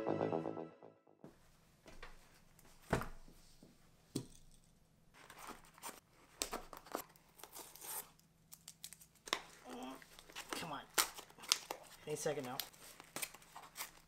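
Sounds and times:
knife slitting packing tape: 6.4 - 9.1, 12.6 - 14.0.

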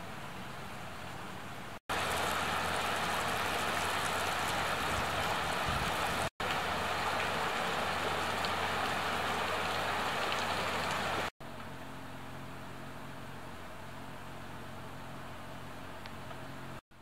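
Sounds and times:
stream flowing over rocks: 1.9 - 11.3.

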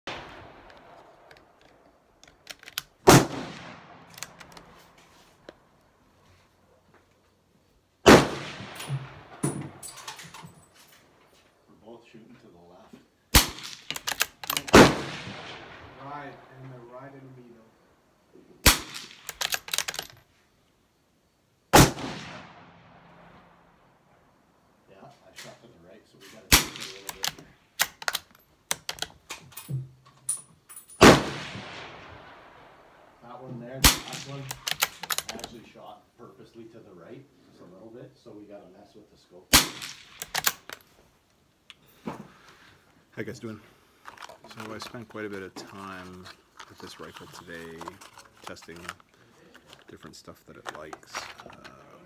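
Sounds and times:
rifle shot echoing: 0.1 - 1.6, 3.0 - 4.8, 8.0 - 9.8, 13.3 - 16.5, 18.6 - 19.4, 21.7 - 24.0, 26.5 - 27.3, 31.0 - 33.2, 33.8 - 35.0, 39.5 - 40.6
rifle bolt clicks: 0.6 - 4.8, 13.4 - 14.8, 18.7 - 20.2, 26.5 - 29.6, 33.8 - 35.5, 39.6 - 40.9.

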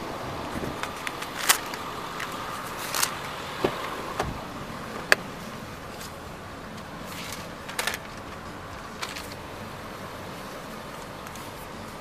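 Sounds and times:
outdoor background noise: 0.0 - 12.0
gear clicks and knocks: 0.5 - 4.4, 5.9 - 9.5
car door: 0.5 - 6.2.

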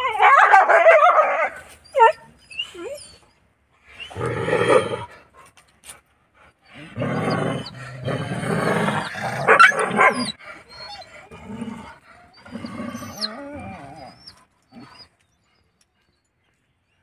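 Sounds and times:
dogs barking harshly: 8.9 - 10.4.

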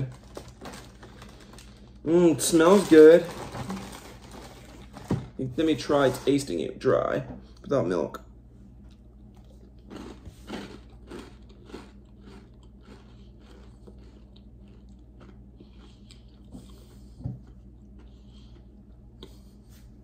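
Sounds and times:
cereal puffs crunching: 0.0 - 5.0, 8.9 - 16.8.

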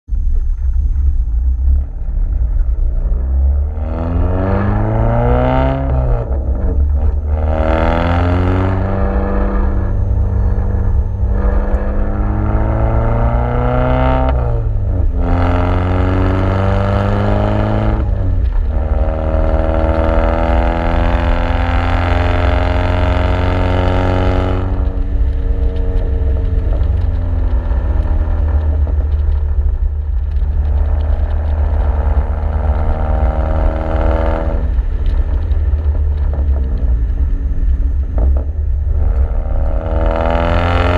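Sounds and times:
car exhaust revving through gears: 0.6 - 40.9.

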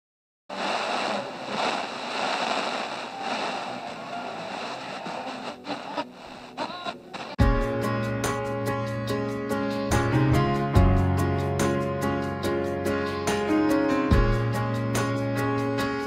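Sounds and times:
radio static hissing: 0.5 - 7.4
whistling radio tones: 0.5 - 7.4
guitar music on radio: 0.5 - 7.5.

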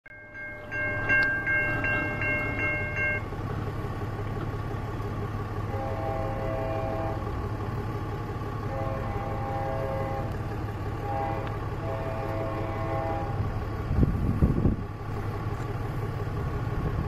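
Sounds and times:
crossing bell ringing: 0.1 - 3.4
train rumbling past: 0.1 - 17.0
train horn blast: 5.7 - 7.4, 8.6 - 10.4, 11.0 - 13.5.

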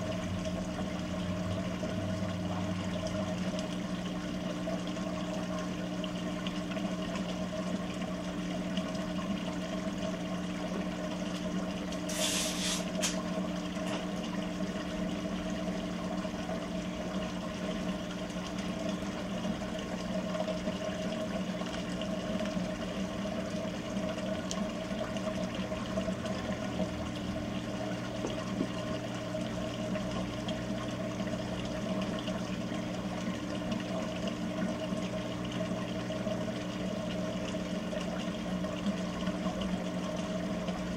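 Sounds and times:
washing machine motor hum: 0.0 - 40.9
water running: 0.0 - 40.9
short hiss: 12.1 - 13.2.

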